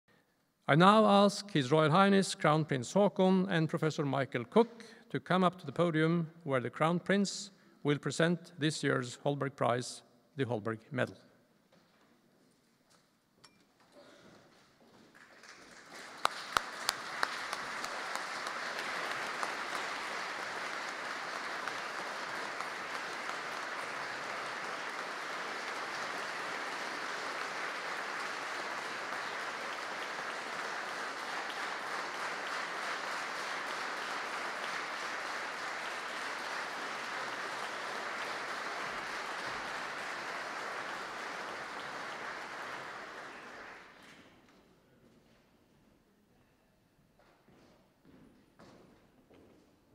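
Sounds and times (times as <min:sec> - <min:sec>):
audience applauding: 0:15.1 - 0:44.3.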